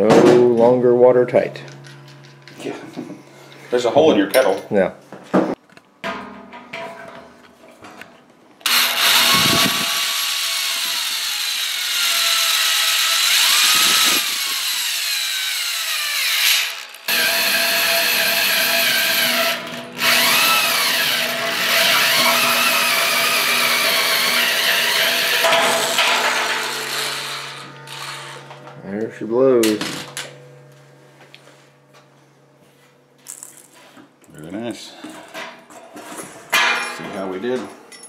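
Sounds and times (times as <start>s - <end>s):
hole saw grinding through steel: 8.6s - 28.6s.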